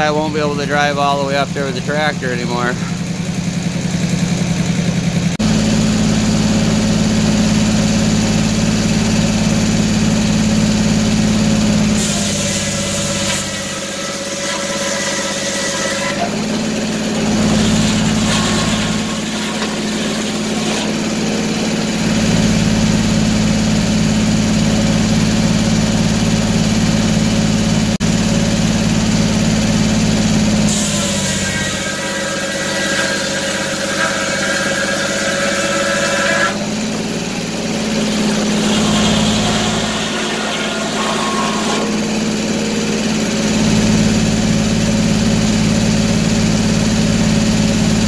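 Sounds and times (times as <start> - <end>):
circular saw cutting log: 0.0 - 26.6, 28.0 - 48.0
droning mill hum: 5.5 - 24.9, 28.7 - 46.6.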